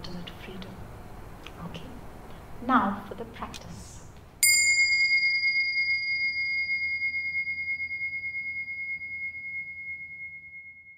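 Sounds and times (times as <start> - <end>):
small bell ringing: 4.4 - 10.9.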